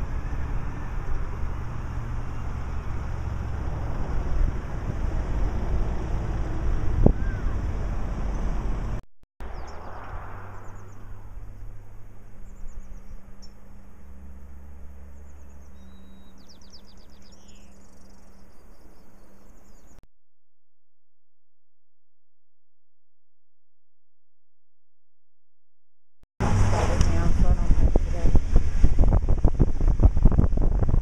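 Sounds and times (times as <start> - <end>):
wind rumbling on microphone: 0.0 - 14.4, 26.4 - 31.0
low steady hum: 0.0 - 20.0
small birds chirping trills: 9.4 - 11.7, 15.0 - 20.0.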